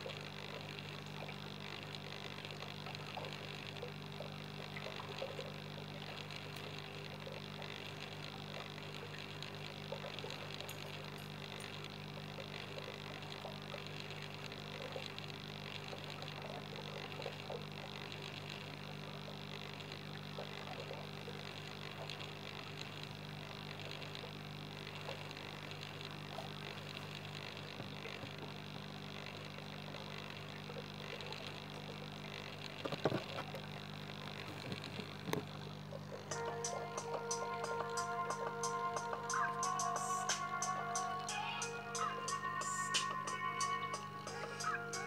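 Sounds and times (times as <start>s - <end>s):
water and air bubbles crackling: 0.0s - 36.3s
aquarium pump hum: 0.0s - 45.0s
steady low tones: 33.8s - 45.0s.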